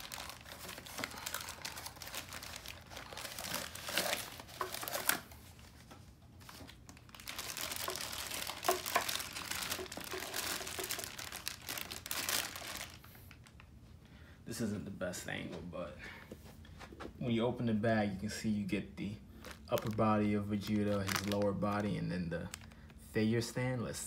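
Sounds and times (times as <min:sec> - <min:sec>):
paper and plastic bags crinkling: 0:00.0 - 0:13.7, 0:19.3 - 0:23.0.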